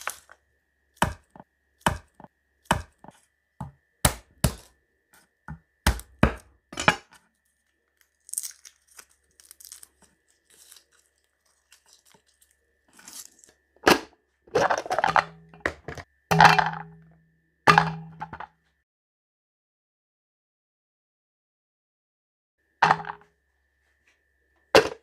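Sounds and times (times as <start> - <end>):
knife chopping on cutting board: 1.0 - 4.7, 5.5 - 6.5
packaging crinkling and tearing: 7.5 - 13.6.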